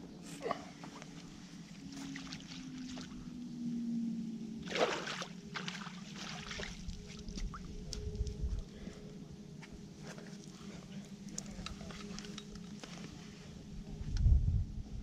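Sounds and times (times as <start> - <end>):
water sloshing and trickling: 0.8 - 3.8, 4.5 - 8.4.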